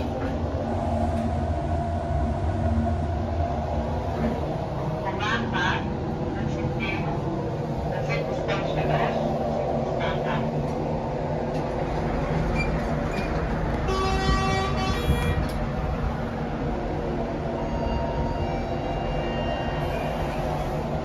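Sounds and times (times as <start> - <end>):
railway station rumble: 0.0 - 21.0
train horn: 13.8 - 15.5.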